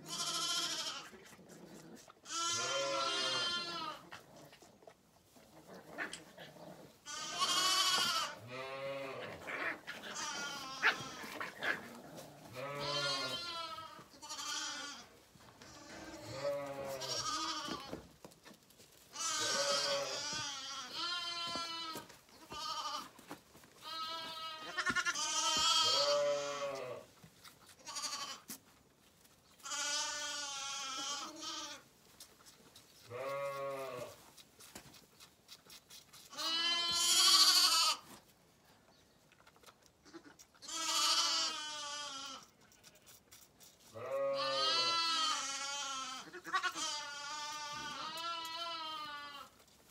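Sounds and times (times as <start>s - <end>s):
lambs bleating: 0.0s - 4.4s, 7.0s - 18.0s, 19.1s - 23.1s, 23.8s - 27.1s, 27.8s - 28.6s, 29.6s - 31.9s, 33.0s - 34.2s, 36.3s - 38.1s, 40.0s - 43.2s, 43.9s - 49.6s.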